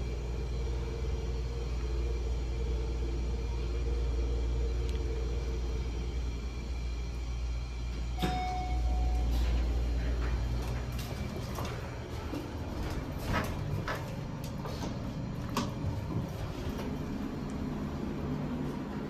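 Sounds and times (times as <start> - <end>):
low rumble: 0.0 - 8.2
elevator doors sliding: 2.0 - 19.0
elevator chime: 8.0 - 10.0.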